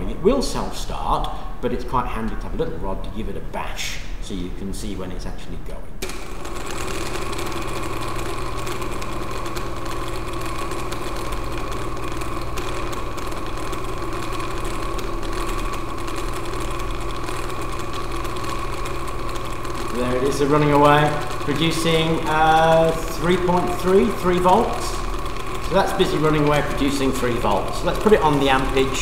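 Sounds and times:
small engine humming with rattle: 6.0 - 29.0.

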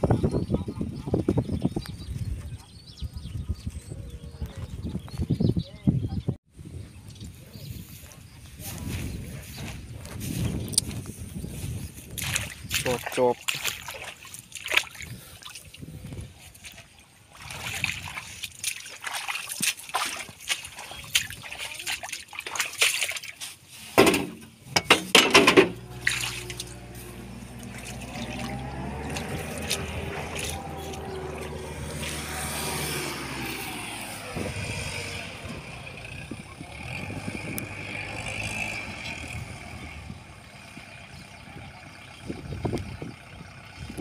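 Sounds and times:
mud and water splashing: 7.0 - 44.0
tractor engine running: 23.9 - 44.0
knocks: 24.0 - 25.8.

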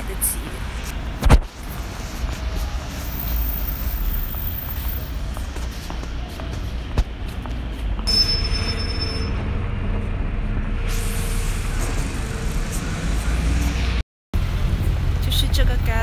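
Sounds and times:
city street traffic: 0.0 - 16.0
high-pitched squeal: 8.1 - 14.0.

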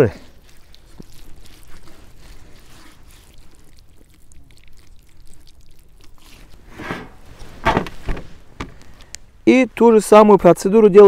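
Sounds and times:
wet squelching: 0.0 - 9.3.

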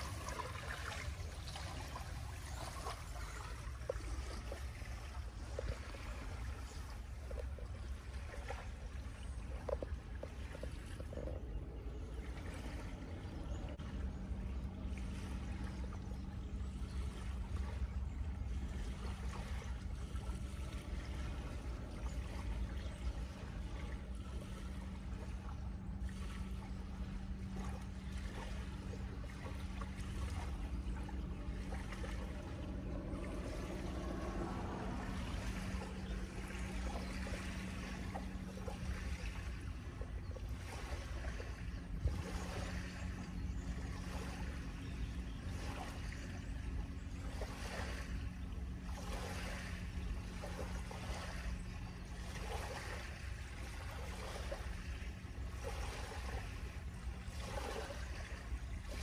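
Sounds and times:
steady low hum: 0.0 - 59.0
wind rumbling on microphone: 0.0 - 59.0.

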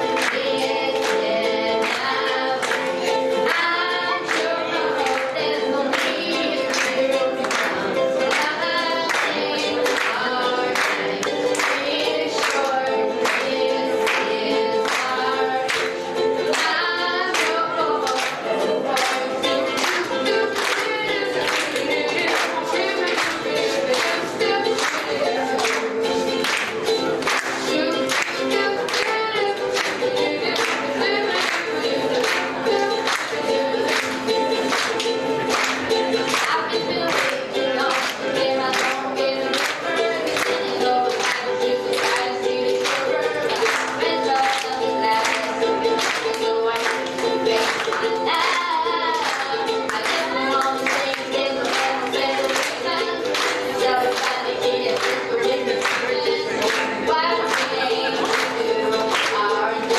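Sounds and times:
ukulele strumming: 0.0 - 59.9
person singing into microphone: 36.3 - 59.9.

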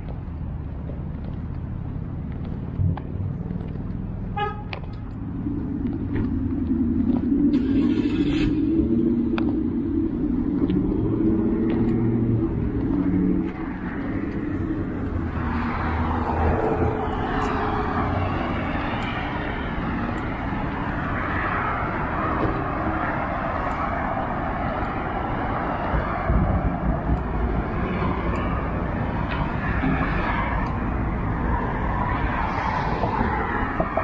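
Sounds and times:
road traffic noise: 0.0 - 34.0
vehicle passing close: 5.0 - 34.0.

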